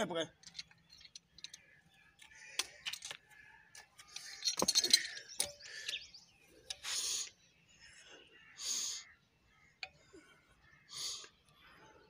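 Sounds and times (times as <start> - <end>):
metallic clinks: 4.2 - 6.0.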